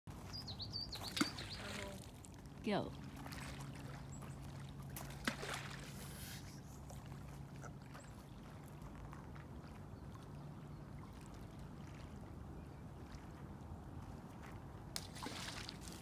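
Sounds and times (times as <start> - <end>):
water lapping on pebble shore: 0.1 - 12.3, 13.0 - 16.0
steady low hum: 0.1 - 16.0
stone splashing into water: 5.0 - 5.9, 15.0 - 16.0.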